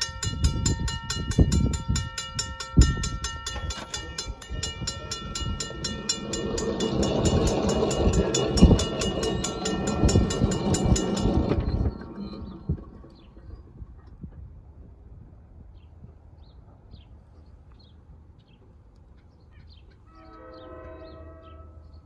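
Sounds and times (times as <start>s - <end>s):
crossing warning bell ringing: 0.0s - 13.0s.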